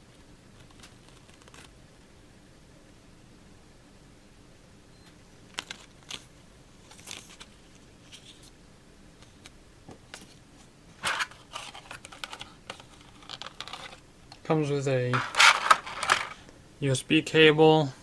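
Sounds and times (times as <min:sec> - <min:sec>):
paper rustling: 0:00.5 - 0:01.7, 0:05.5 - 0:08.5, 0:10.1 - 0:14.0, 0:15.1 - 0:16.4
plastic tray crackling and clicking: 0:11.1 - 0:14.4.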